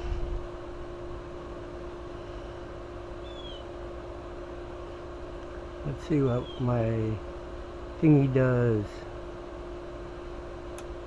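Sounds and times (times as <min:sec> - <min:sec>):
steady electrical hum: 0:00.0 - 0:11.0.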